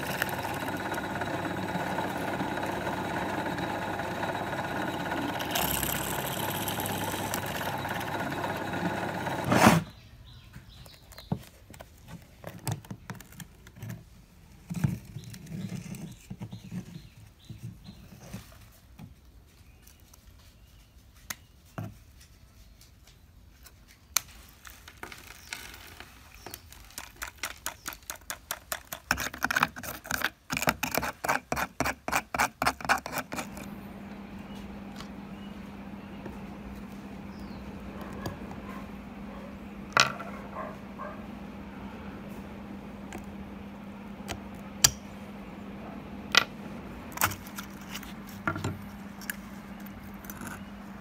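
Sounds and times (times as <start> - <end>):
electric drill drilling into plastic: 0.0 - 9.9.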